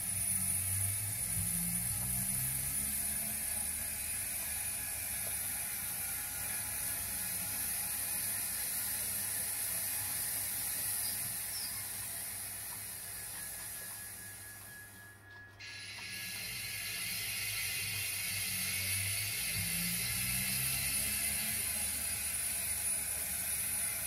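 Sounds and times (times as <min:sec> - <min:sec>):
geared drive mechanism whirring: 0:00.0 - 0:24.0.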